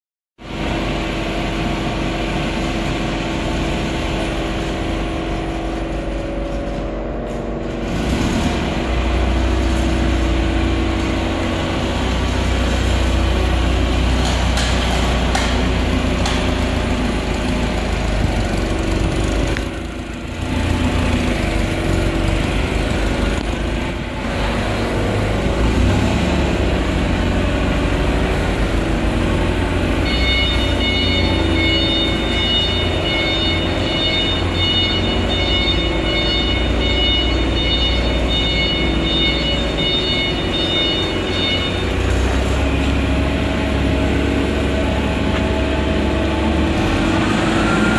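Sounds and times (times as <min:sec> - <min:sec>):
forklift engine humming: 0:00.4 - 0:47.9
electronic warning beeper: 0:30.0 - 0:42.1.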